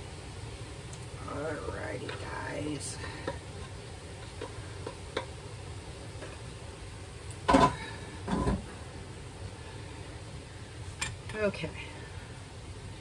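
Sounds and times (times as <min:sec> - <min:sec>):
cookware clanking: 0:07.5 - 0:08.6.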